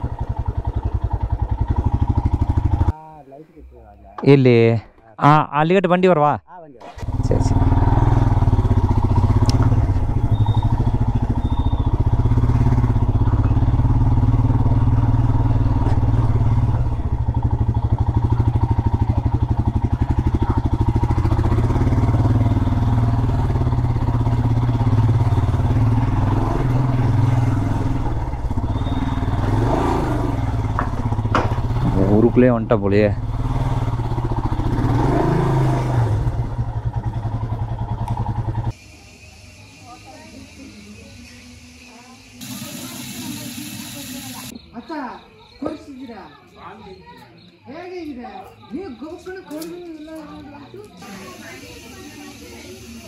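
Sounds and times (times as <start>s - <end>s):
motorcycle engine running: 0.0s - 3.2s, 6.8s - 44.6s, 50.4s - 53.0s.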